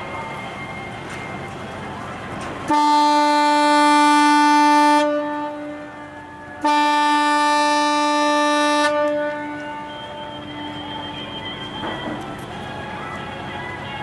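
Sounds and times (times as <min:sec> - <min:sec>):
ship horn long blasts: 0:02.7 - 0:11.0.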